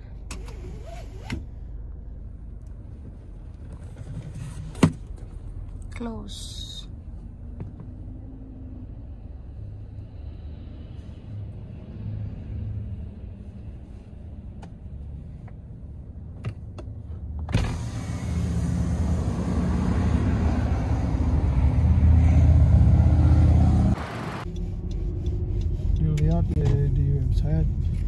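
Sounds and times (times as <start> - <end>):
road and engine noise rush: 0.0 - 28.0
car interior hum: 12.8 - 28.0.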